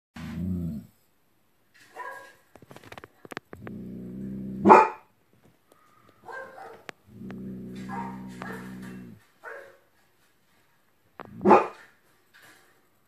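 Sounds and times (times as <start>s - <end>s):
dog growling: 0.2s - 1.0s, 3.5s - 4.9s, 7.0s - 9.2s
dog barking: 1.9s - 2.4s, 4.6s - 5.1s, 6.2s - 6.9s, 7.8s - 9.8s, 11.4s - 11.9s.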